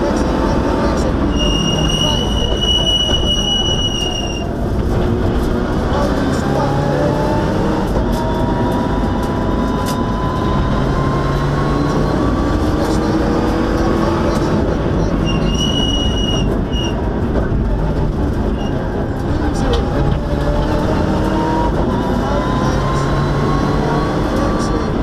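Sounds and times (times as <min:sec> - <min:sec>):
car engine at full speed: 0:00.0 - 0:25.0
brief high squeal: 0:01.3 - 0:04.5, 0:15.2 - 0:17.0.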